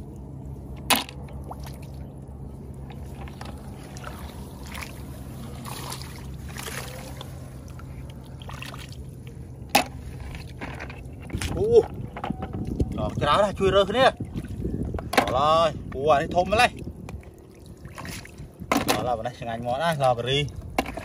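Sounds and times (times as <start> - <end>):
small water splashes: 0.0 - 12.0, 12.6 - 15.4, 16.5 - 21.0
low hum: 0.0 - 19.0
wet straw rustling: 2.8 - 9.4.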